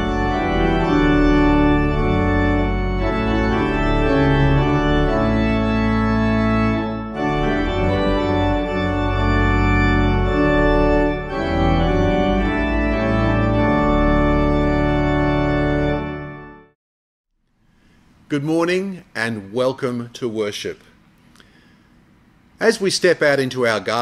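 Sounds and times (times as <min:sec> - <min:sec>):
organ playing held chords: 0:00.0 - 0:16.8.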